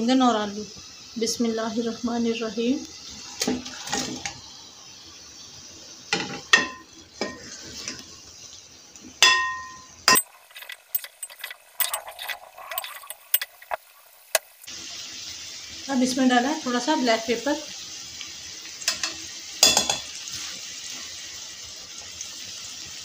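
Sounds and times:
ladle striking pot with ring: 0:09.2 - 0:11.4
metal ladle scraping a pot: 0:09.5 - 0:14.7.

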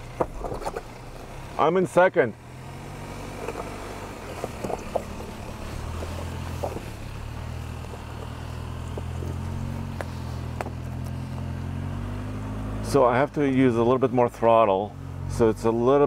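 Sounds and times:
suv engine pulling at low revs: 0:00.0 - 0:16.0
stones clicking and knocking: 0:03.4 - 0:11.2.

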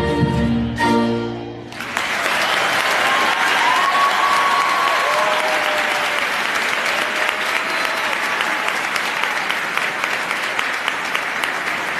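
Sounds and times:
audience applauding: 0:01.7 - 0:11.9
cheering calls: 0:01.8 - 0:11.9.

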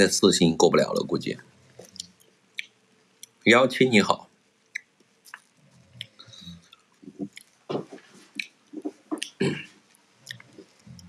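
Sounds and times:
person chewing with wet smacks: 0:01.8 - 0:03.4, 0:04.7 - 0:07.6, 0:08.3 - 0:11.0.

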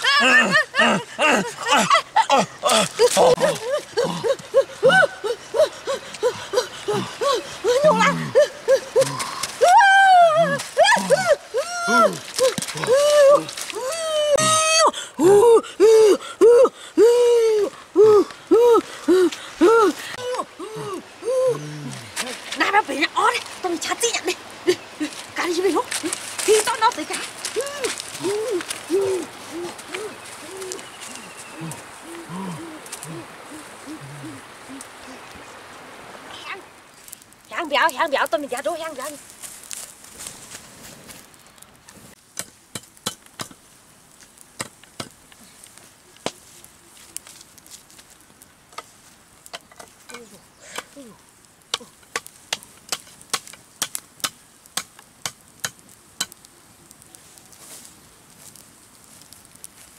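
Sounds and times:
people giving hooting cries: 0:00.0 - 0:21.8, 0:27.5 - 0:35.2.

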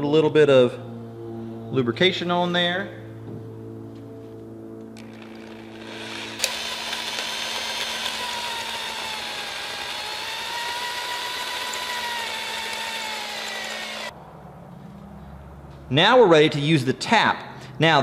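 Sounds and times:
electric drill whining: 0:05.0 - 0:14.1.

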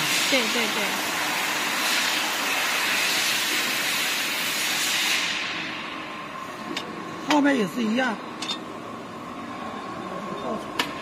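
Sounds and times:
loud steady hiss: 0:00.0 - 0:06.4.

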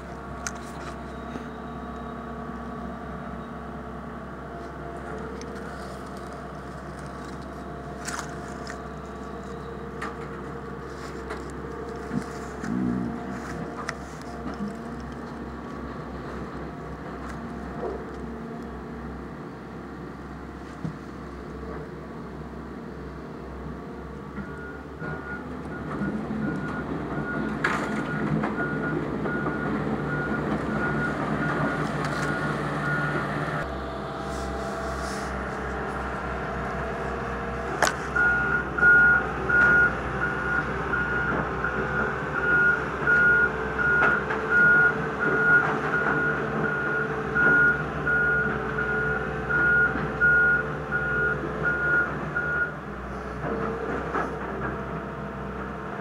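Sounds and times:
diesel engine running: 0:00.0 - 0:56.0
reversing alarm beeping: 0:24.4 - 0:33.7, 0:38.1 - 0:52.8.

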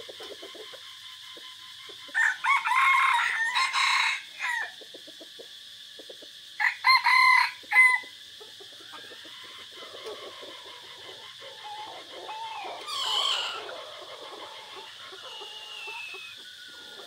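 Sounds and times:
rooster crowing: 0:02.1 - 0:04.8, 0:06.6 - 0:08.2, 0:09.0 - 0:17.0.

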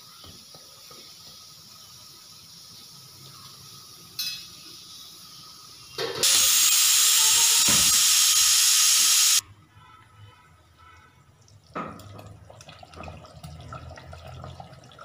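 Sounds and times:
pressure cooker steam hiss: 0:00.0 - 0:09.4.

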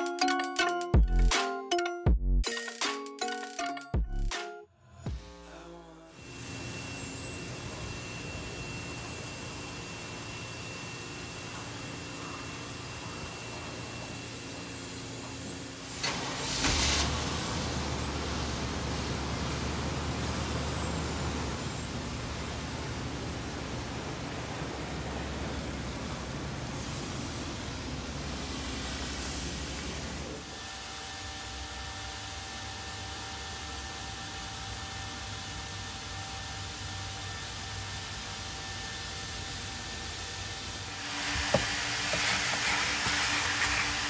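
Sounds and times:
high whine: 0:05.0 - 0:16.0
car wash equipment hum: 0:05.2 - 0:44.0.

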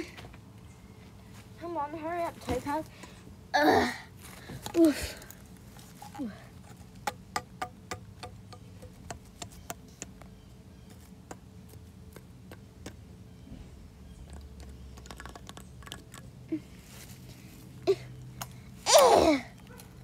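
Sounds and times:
low steady hum: 0:00.0 - 0:20.0
plastic toys tapping on bricks: 0:06.9 - 0:10.3, 0:14.2 - 0:16.2.

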